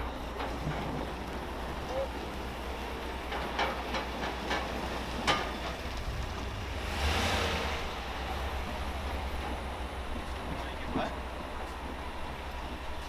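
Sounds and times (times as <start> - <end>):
knocks and clanks: 0.0 - 1.4, 3.2 - 6.8
pickup engine humming: 0.0 - 13.0.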